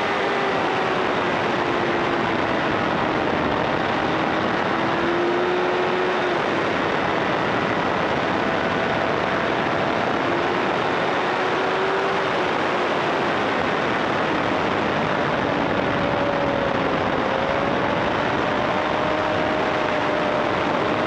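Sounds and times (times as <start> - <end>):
wind rush: 0.0 - 21.0.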